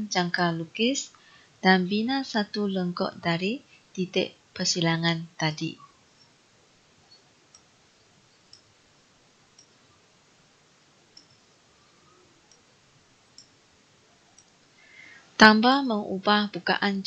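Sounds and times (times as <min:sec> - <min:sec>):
faint mouse clicks: 0:08.5 - 0:08.7, 0:11.1 - 0:11.5, 0:13.3 - 0:13.6, 0:14.3 - 0:14.6.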